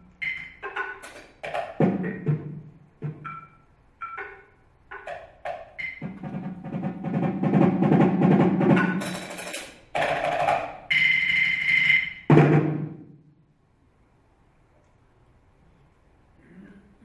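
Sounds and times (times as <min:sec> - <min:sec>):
percussion struck with mallets: 0:00.0 - 0:13.1
percussion roll: 0:00.0 - 0:13.3.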